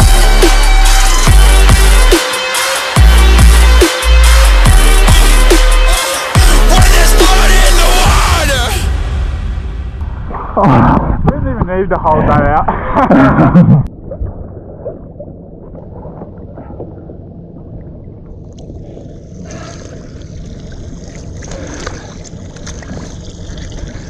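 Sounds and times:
muffled water sloshing underwater: 10.0s - 24.0s
water lapping against boat: 13.9s - 24.0s.

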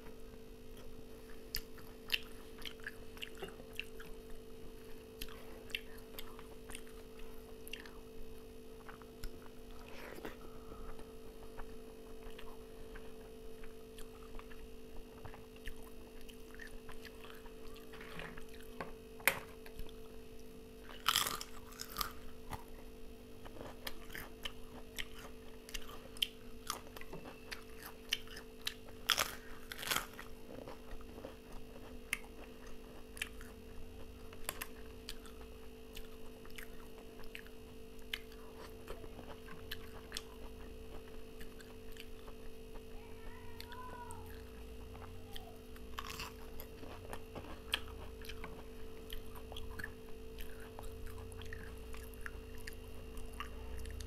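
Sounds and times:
chewing and crunching food: 0.0s - 54.0s
steady hum: 0.0s - 54.0s
crackly crunches of fried crisps: 28.7s - 32.4s.

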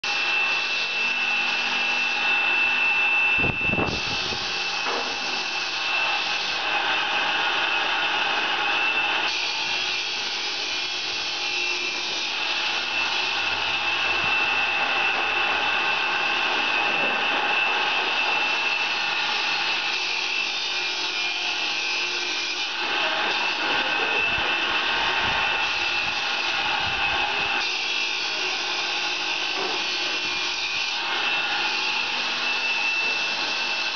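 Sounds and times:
workshop machinery whining: 0.0s - 33.9s.

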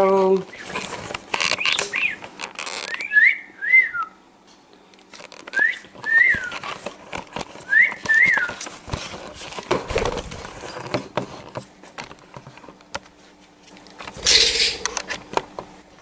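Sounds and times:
person whistling: 2.9s - 4.2s, 5.6s - 6.6s.

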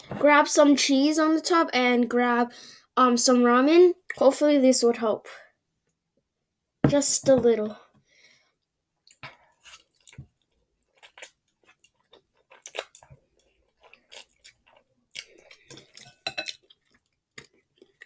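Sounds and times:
chewing: 9.0s - 18.0s.

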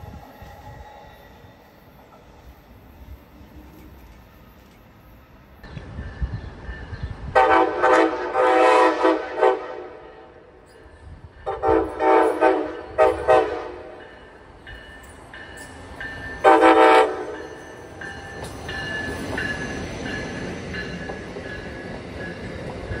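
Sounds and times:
wheel and rail noise: 0.0s - 7.4s, 9.9s - 23.0s
locomotive horn blasts: 7.4s - 10.5s, 11.4s - 14.0s, 16.4s - 17.4s.

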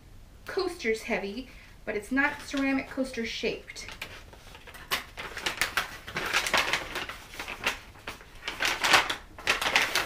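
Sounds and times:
wrapping paper tearing and crinkling: 3.8s - 10.0s.

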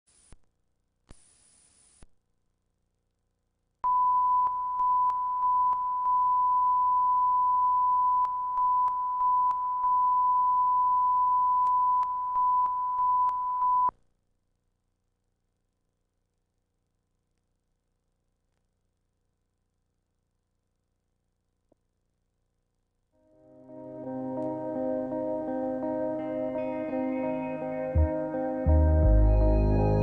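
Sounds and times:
single-pitch test tone: 3.8s - 13.9s.

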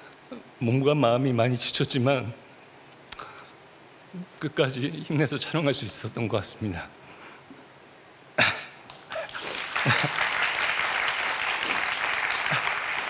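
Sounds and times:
audience applauding: 8.9s - 13.0s.

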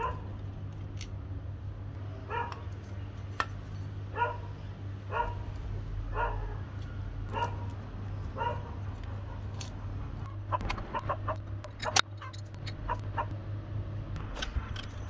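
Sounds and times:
dog barking: 0.0s - 0.3s, 2.3s - 2.6s, 4.1s - 5.5s, 6.1s - 6.6s, 7.3s - 7.7s, 8.4s - 9.4s, 12.9s - 13.3s
steady low hum: 0.0s - 15.0s.

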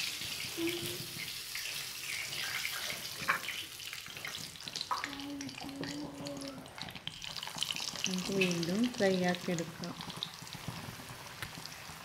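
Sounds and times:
oil sizzling in a frying pan: 0.0s - 12.0s.

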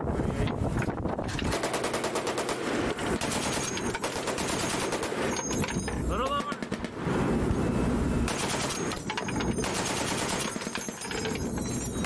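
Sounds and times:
heavy machine gun firing: 1.3s - 5.6s, 8.3s - 11.6s.

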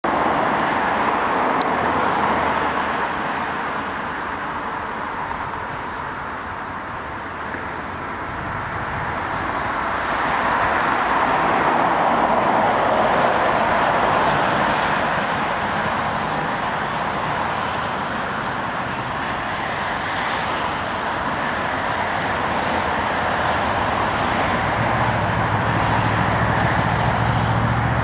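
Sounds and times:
jet engines roaring: 0.1s - 28.0s.

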